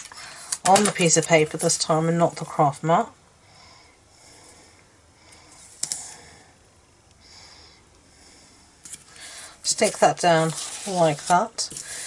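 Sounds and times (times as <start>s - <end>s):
soft paper rustles: 8.9s - 12.0s.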